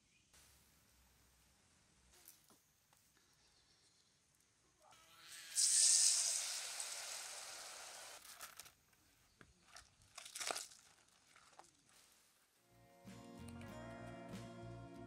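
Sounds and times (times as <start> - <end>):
food sizzling in hot oil: 5.6 - 8.2
wire basket clicks and rustles: 8.2 - 8.8.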